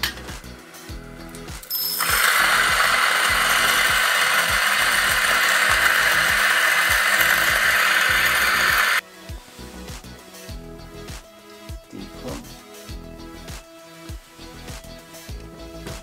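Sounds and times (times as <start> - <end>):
electric coffee grinder whirring: 1.7 - 9.0.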